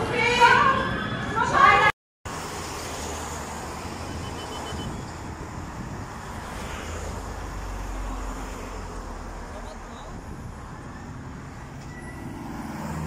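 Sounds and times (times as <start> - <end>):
road traffic rumble and hiss: 2.3 - 13.0
wind on microphone: 4.1 - 7.8.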